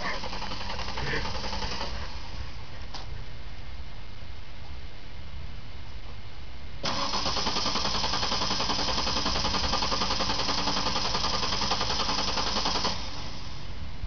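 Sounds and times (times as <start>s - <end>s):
starter motor cranking: 0.0s - 2.4s, 6.8s - 13.7s.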